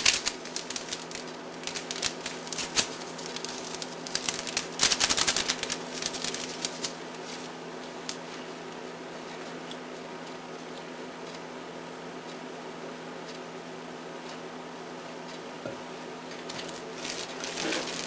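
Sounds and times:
paper packets crinkling: 0:00.0 - 0:08.4, 0:16.4 - 0:18.0.

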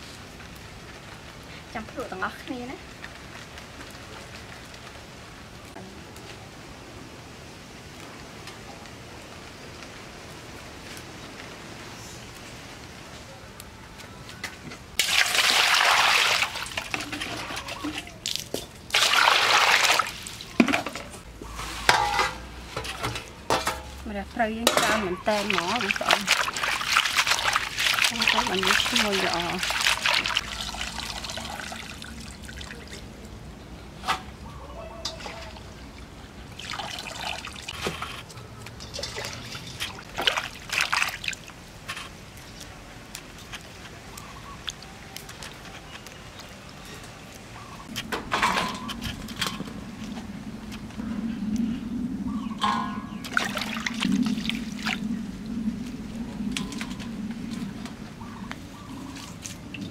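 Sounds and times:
water pouring into metal bowl: 0:15.0 - 0:18.1, 0:25.2 - 0:33.0, 0:36.5 - 0:37.7, 0:38.8 - 0:41.2.

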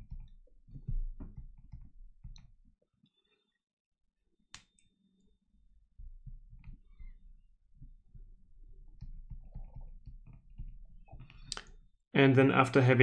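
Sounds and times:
stylus clicking on tablet screen: 0:00.0 - 0:02.6, 0:06.2 - 0:07.2, 0:07.8 - 0:11.8.

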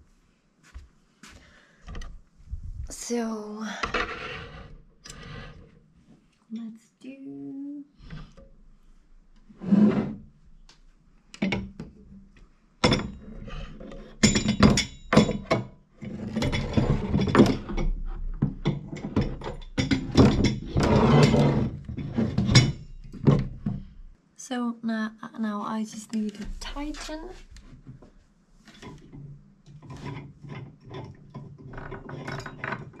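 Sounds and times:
knocks and clunks of parts: 0:11.4 - 0:24.0, 0:27.7 - 0:33.0
rattling and scraping: 0:12.8 - 0:24.0, 0:28.6 - 0:33.0.

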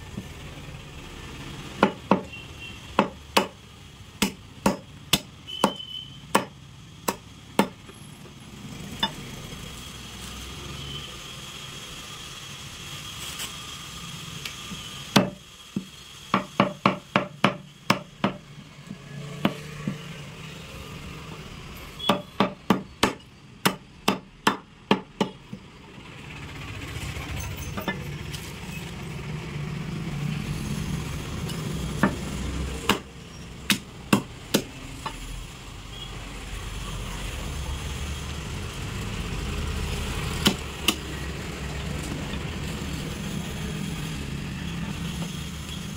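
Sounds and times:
cleaver chopping on a chopping block: 0:01.8 - 0:02.3, 0:03.0 - 0:03.6, 0:04.2 - 0:07.8, 0:15.1 - 0:20.1, 0:22.0 - 0:25.4, 0:32.8 - 0:33.1, 0:33.7 - 0:34.7.

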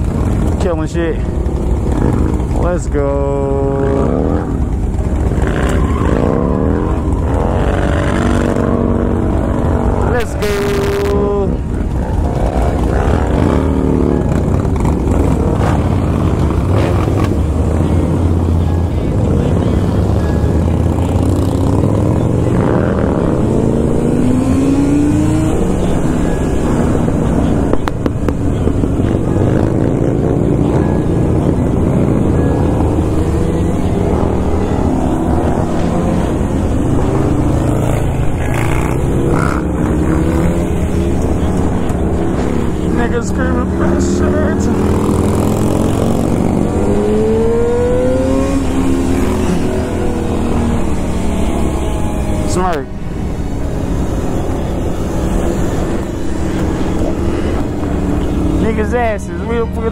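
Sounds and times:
motorcycle engine revving: 0:00.0 - 0:59.9
motorcycle engines rumbling: 0:00.0 - 0:59.9
wind and road noise: 0:00.0 - 0:59.9.

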